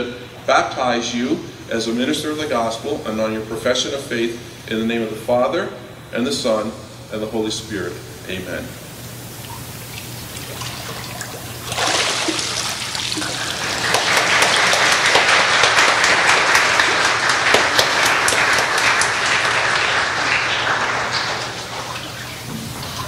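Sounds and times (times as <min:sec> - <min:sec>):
congregation applauding: 0:11.2 - 0:23.0.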